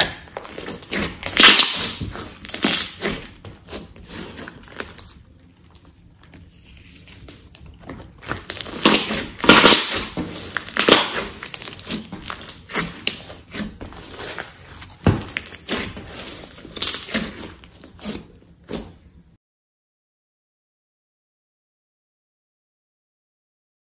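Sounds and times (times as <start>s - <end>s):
slime squishing and crackling: 0.0s - 19.0s.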